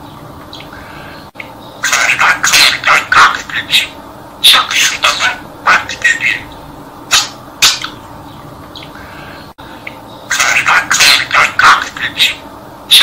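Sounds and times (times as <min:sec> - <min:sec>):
budgerigar chattering: 0:01.8 - 0:08.0, 0:10.2 - 0:13.0.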